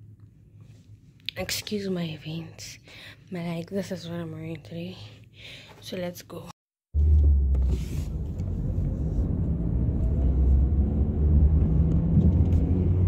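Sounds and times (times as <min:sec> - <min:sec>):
car road and engine rumble: 0:07.0 - 0:13.0.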